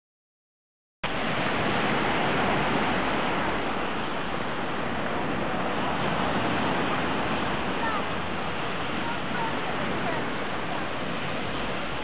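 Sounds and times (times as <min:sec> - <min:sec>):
waves washing onto sandy beach: 0:01.0 - 0:12.0.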